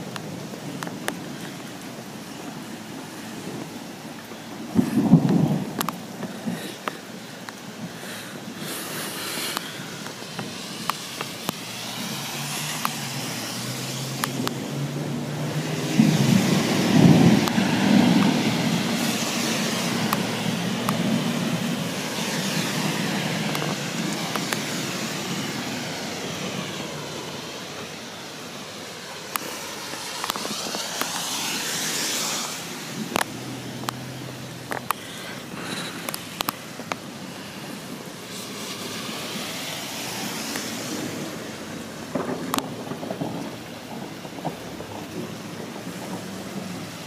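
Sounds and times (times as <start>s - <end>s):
close taps of raindrops: 0.0s - 14.7s, 15.3s - 25.2s, 29.2s - 32.3s, 32.9s - 37.2s, 40.4s - 40.9s, 41.7s - 47.0s
steady heavy rain: 0.0s - 47.0s
low roll of thunder: 4.6s - 6.0s, 14.7s - 22.0s, 42.0s - 47.0s.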